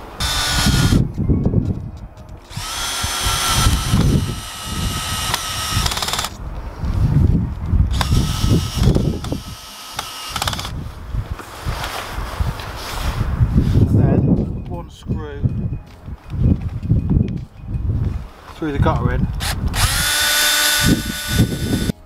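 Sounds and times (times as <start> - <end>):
power drill driving screws: 0.2 - 1.0, 2.5 - 6.4, 7.9 - 10.7, 19.4 - 21.9.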